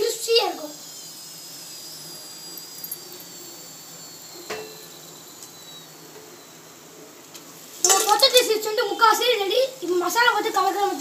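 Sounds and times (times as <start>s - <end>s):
faint high whine: 0.0s - 11.0s
hot oil sizzling in a pan: 0.0s - 11.0s.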